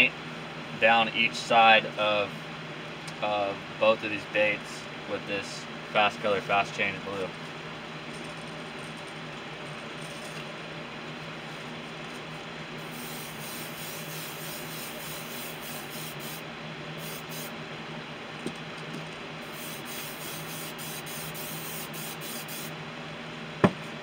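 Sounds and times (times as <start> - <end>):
airbrush air hiss: 12.8 - 16.4, 17.0 - 17.5, 19.4 - 22.7.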